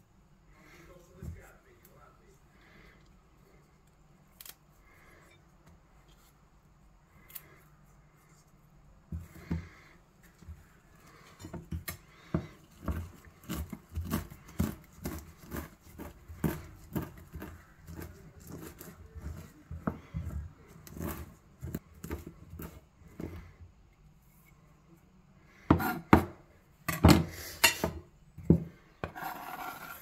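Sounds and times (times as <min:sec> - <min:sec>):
knife chopping on plastic board: 0:11.5 - 0:23.4, 0:25.7 - 0:26.4.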